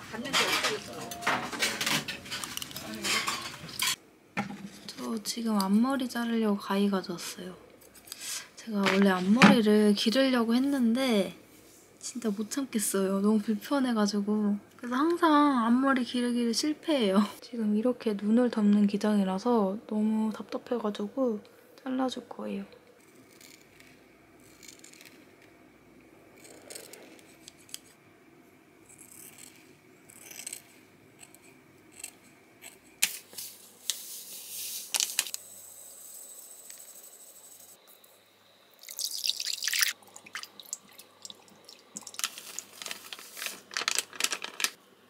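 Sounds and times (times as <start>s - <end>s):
sugar pouring into glass bowl: 38.8s - 43.5s.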